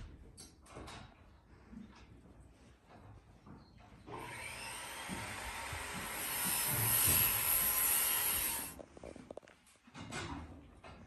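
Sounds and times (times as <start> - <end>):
power saw cutting wood: 4.1 - 8.8.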